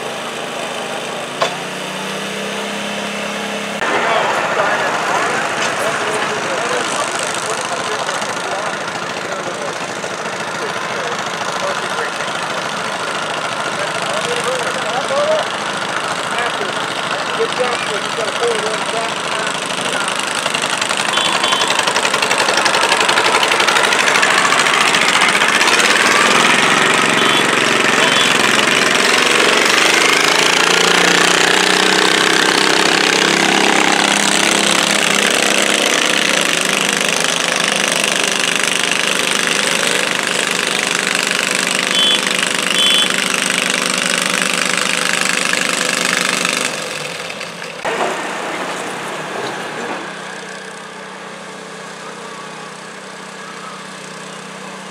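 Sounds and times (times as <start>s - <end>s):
tractor engine running under load: 0.0s - 54.9s.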